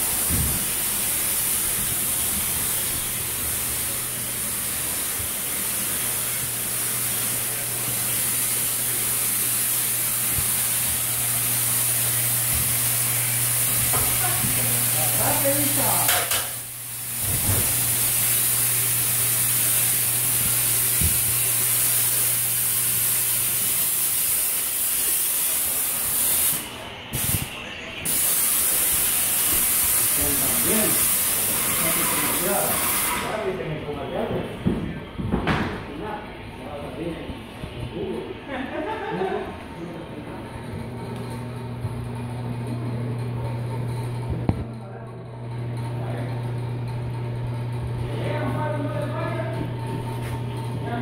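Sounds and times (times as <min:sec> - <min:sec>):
paint sprayer hissing: 0:00.0 - 0:33.5
low motor hum: 0:34.3 - 0:51.0.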